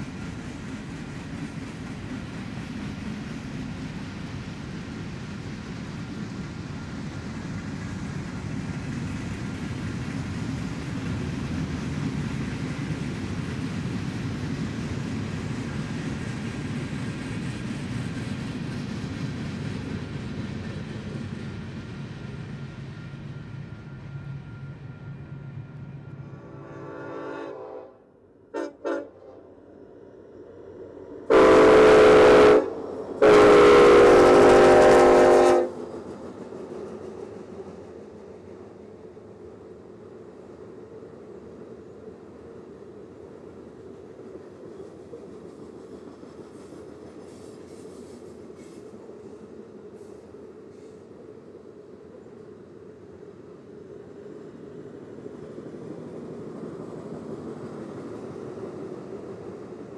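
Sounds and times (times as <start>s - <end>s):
freight train rumble: 0.0s - 59.9s
faint horn blasts: 25.3s - 29.5s, 31.3s - 35.7s
locomotive horn: 26.1s - 29.5s, 31.3s - 35.8s.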